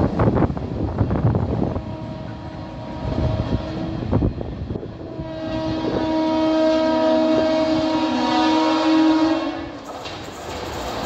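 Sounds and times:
locomotive horn blast: 1.6 - 4.2, 5.0 - 9.8
freight wagons rattling over rail joints: 9.8 - 11.0.

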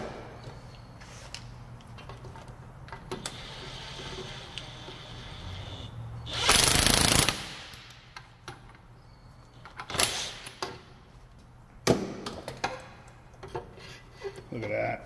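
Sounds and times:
impact wrench whirring: 3.1 - 8.0, 9.9 - 10.6.

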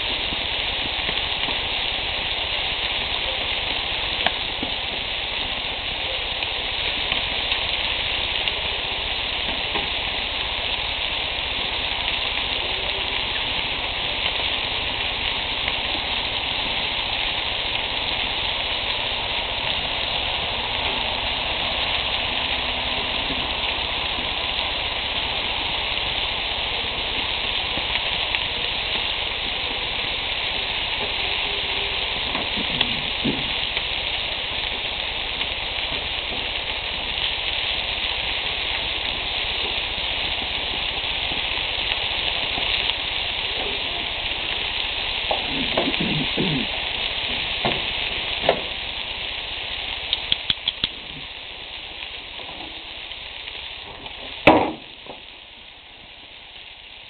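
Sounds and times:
meat sizzling on a grill: 0.0 - 57.0
quick ticks: 50.1 - 51.0
sharp knock: 54.5 - 54.9.

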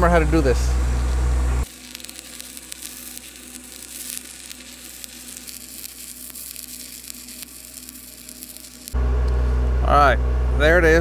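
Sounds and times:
welding arc crackling: 1.0 - 9.0.

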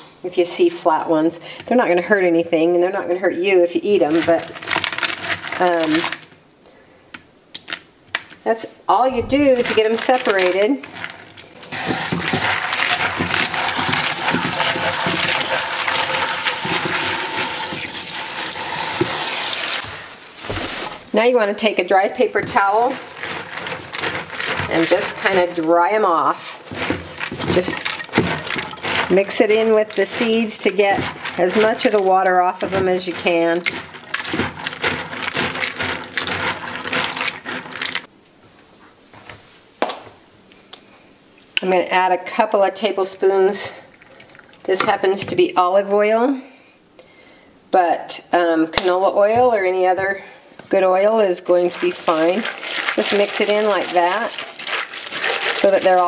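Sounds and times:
hands rubbing seeds: 9.2 - 21.2, 22.4 - 38.1, 51.5 - 56.0
tap water running into colander: 11.6 - 19.9, 22.4 - 38.1, 43.9 - 45.0, 51.5 - 56.0.

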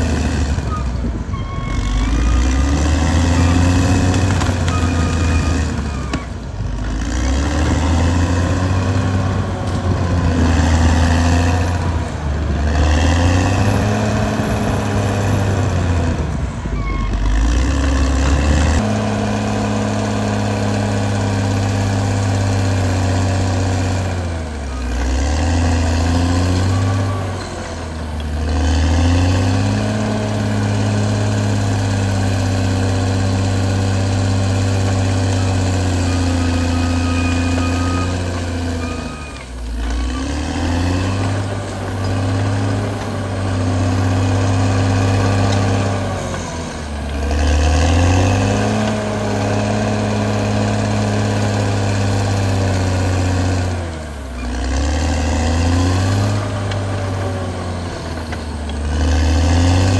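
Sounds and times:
bulldozer diesel engine working: 0.0 - 59.9.

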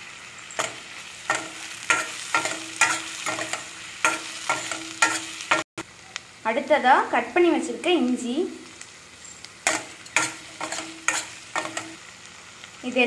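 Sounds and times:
vegetables sizzling in oil: 0.0 - 13.0
spoon scraping a pan: 0.5 - 5.6, 9.6 - 12.0.

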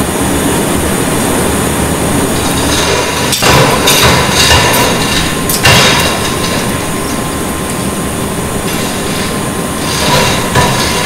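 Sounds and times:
chain hoist mechanical rumble: 2.3 - 11.0
loud metal clank: 2.4 - 7.4, 8.6 - 11.0.

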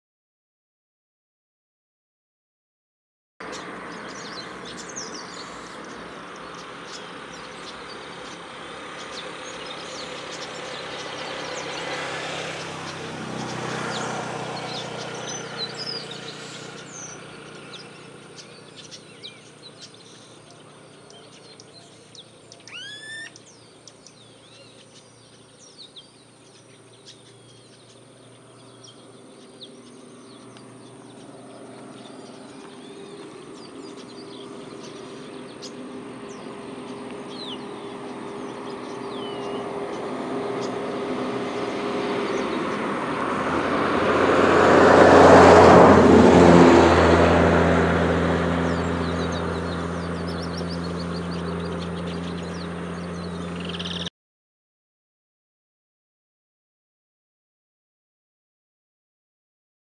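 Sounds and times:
blackbirds chattering: 3.4 - 42.9, 48.3 - 54.1
rising whistle: 22.7 - 23.4.

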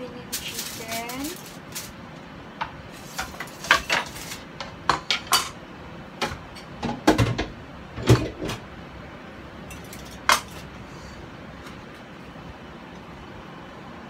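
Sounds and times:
dishes clinking and knocking: 3.1 - 5.6, 6.2 - 8.6, 9.7 - 10.7.

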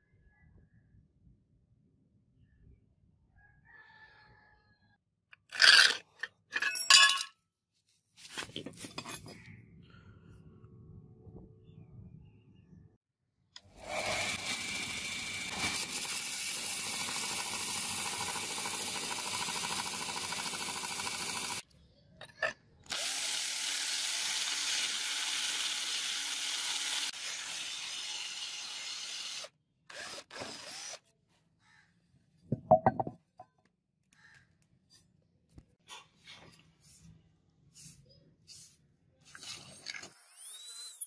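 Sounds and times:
belt grinder grinding steel: 13.7 - 21.6, 22.9 - 31.0
electric drill boring through steel: 13.7 - 21.6, 22.9 - 31.0.

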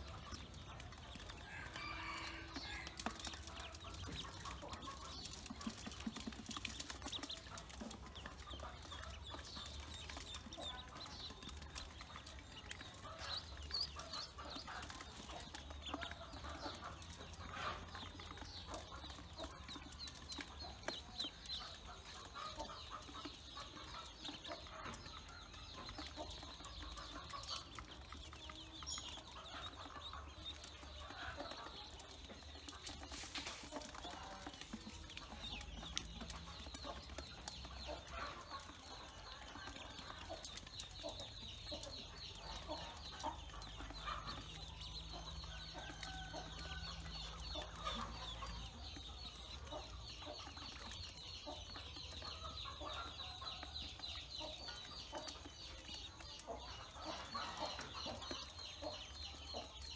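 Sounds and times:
ducklings peeping: 0.0 - 59.9.

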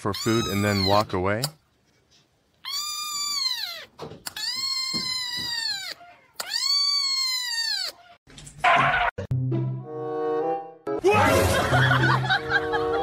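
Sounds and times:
kitten meowing: 0.1 - 1.1, 2.6 - 8.2.

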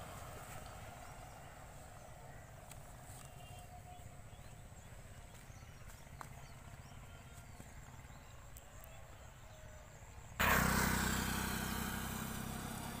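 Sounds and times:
motorcycle engine passing: 0.0 - 8.2, 10.4 - 13.0.

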